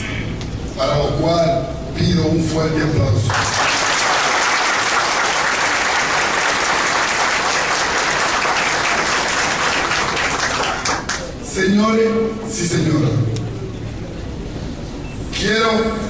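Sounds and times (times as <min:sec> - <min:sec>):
audience applauding: 0:03.3 - 0:11.3.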